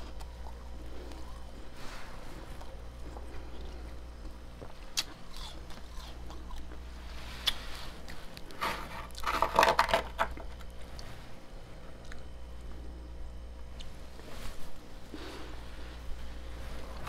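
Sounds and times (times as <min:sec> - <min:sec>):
low steady hum: 0:00.0 - 0:17.0
metal spoon crunching frost: 0:04.6 - 0:10.7.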